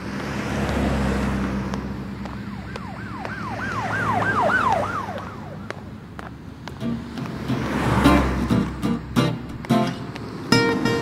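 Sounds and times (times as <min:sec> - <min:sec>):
road traffic rumble: 0:00.0 - 0:11.0
emergency siren sweeping: 0:01.9 - 0:06.0.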